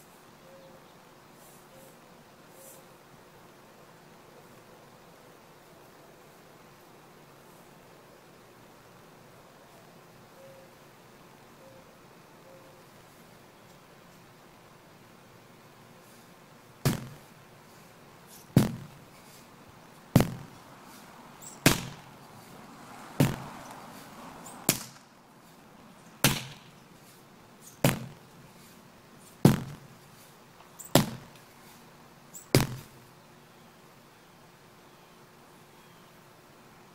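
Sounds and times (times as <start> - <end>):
sledgehammer thudding on rubber tire: 16.8 - 17.3, 18.4 - 19.0, 20.1 - 20.6, 21.6 - 22.1, 23.2 - 23.5, 24.6 - 25.0, 26.2 - 26.8, 27.8 - 28.2, 29.4 - 29.9, 30.9 - 31.3, 32.5 - 32.9.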